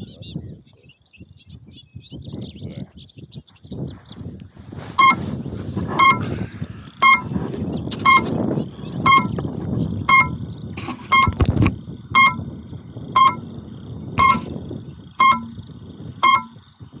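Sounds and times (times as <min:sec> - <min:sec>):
wind buffeting microphone: 0:00.0 - 0:17.0
short buzzer beeps: 0:05.0 - 0:05.3, 0:05.9 - 0:06.3, 0:07.0 - 0:07.3, 0:08.0 - 0:08.4, 0:09.1 - 0:09.4, 0:10.1 - 0:11.4, 0:12.2 - 0:12.5, 0:13.2 - 0:13.5, 0:14.2 - 0:14.5, 0:15.2 - 0:16.6.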